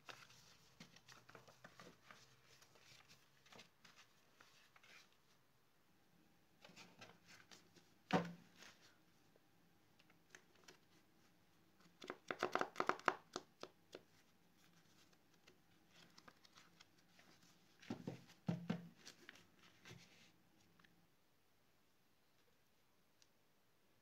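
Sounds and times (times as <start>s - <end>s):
paper sheets tapping and rustling: 0.0s - 5.1s, 11.9s - 14.2s.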